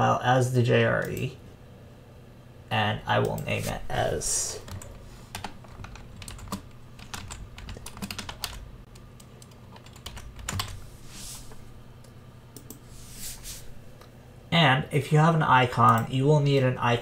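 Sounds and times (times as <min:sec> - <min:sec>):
computer keyboard typing: 0:04.6 - 0:10.8.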